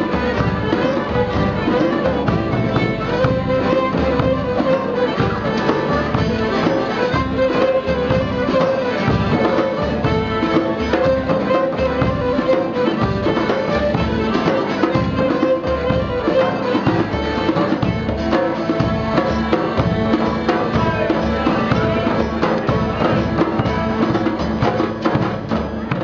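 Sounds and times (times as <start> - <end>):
bass drum beating: 0.0 - 26.0
fiddle: 0.0 - 26.0
folk band playing: 0.0 - 26.0.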